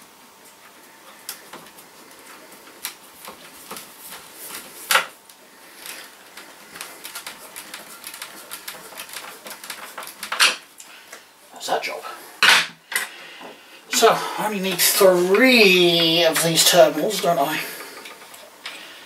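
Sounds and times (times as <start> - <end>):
screwdriver turning a screw: 6.7 - 10.4.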